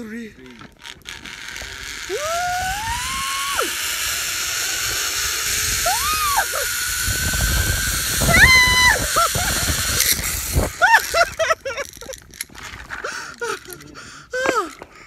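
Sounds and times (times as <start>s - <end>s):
zip-line trolley whirring: 0.4s - 15.0s
woman whooping: 2.1s - 3.8s, 5.8s - 6.7s, 8.2s - 9.5s
wind on microphone: 2.1s - 4.1s, 4.7s - 11.5s.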